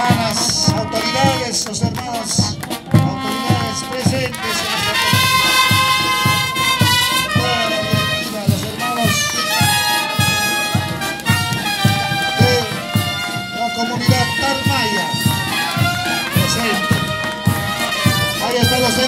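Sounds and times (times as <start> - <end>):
bass drum beating: 0.0 - 19.0
brass playing march: 0.0 - 19.0.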